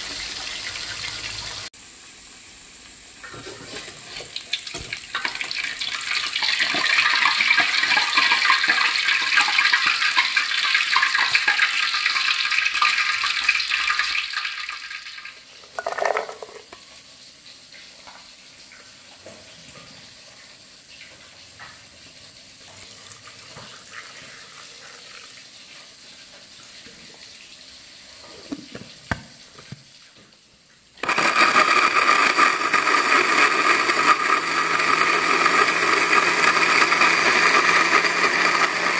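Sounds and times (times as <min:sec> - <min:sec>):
fish sizzling in hot oil: 0:00.0 - 0:15.7
electric blender grinding: 0:06.4 - 0:11.6, 0:31.0 - 0:38.9.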